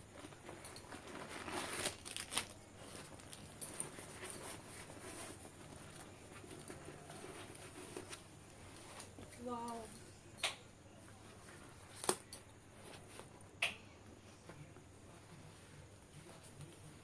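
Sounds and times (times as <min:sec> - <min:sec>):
nylon fabric rustling: 0:00.0 - 0:09.4.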